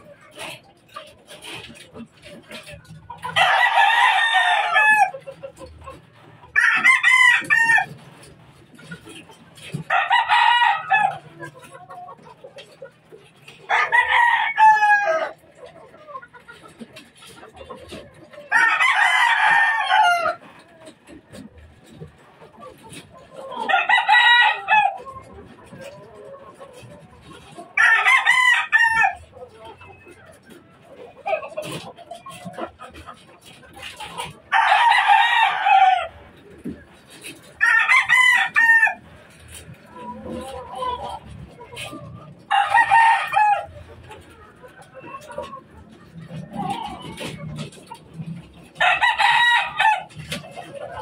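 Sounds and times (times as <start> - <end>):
chicken clucking: 0.0 - 51.0
rooster crowing: 6.6 - 7.9, 27.8 - 29.2, 37.6 - 39.0, 48.8 - 50.1.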